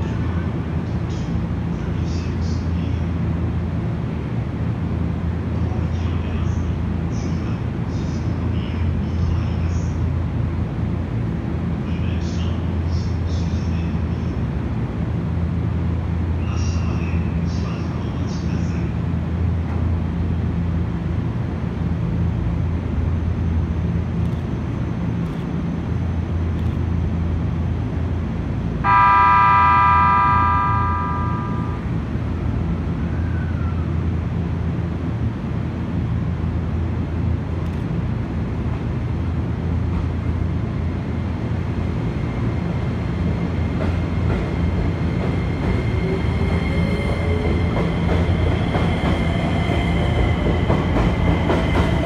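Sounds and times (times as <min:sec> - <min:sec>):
train electric horn blast: 0:28.8 - 0:32.0
train traction motors whining: 0:28.8 - 0:32.8.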